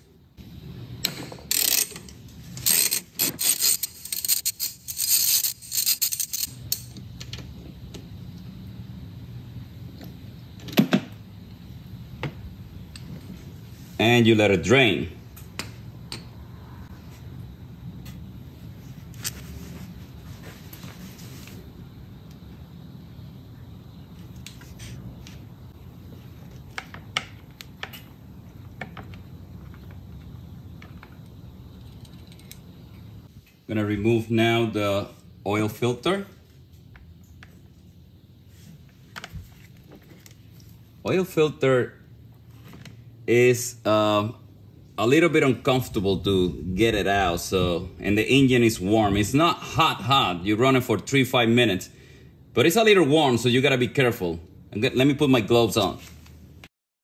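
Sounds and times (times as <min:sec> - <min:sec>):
ratchet clicking: 0:01.0 - 0:07.0.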